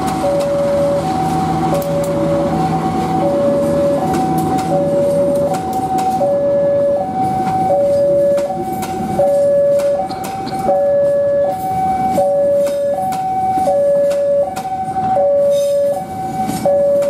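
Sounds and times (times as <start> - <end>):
train coaches rumbling past: 0.0 - 17.0
two-tone electronic warning alarm: 0.0 - 17.0
wheels clicking over rail joints: 3.1 - 6.4.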